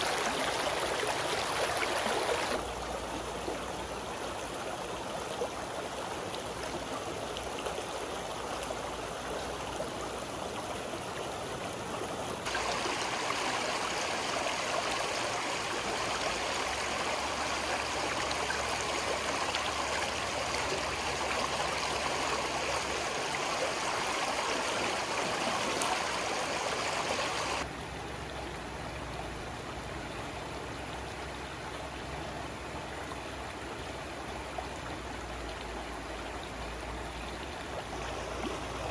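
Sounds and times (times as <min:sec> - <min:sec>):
stream running over rocks: 0:00.0 - 0:38.9.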